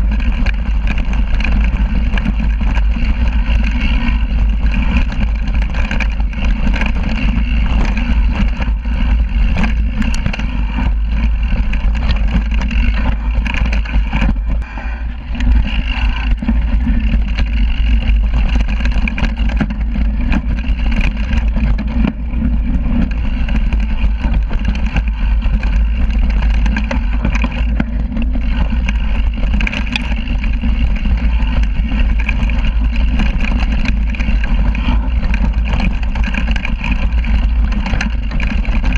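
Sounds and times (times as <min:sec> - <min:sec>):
bike clicking and rattling: 0:00.0 - 0:38.9
knobby tyre noise: 0:00.0 - 0:38.9.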